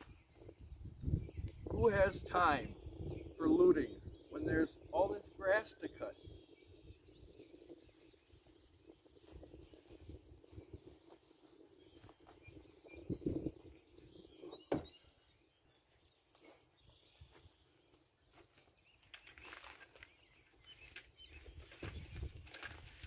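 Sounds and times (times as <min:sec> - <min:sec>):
faint distant bird calls: 0:00.0 - 0:23.0
short thumps: 0:14.7 - 0:15.0.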